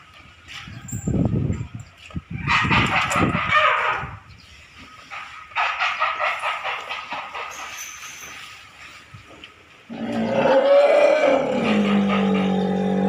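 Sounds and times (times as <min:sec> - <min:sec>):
elephant long low call: 0:09.9 - 0:13.0.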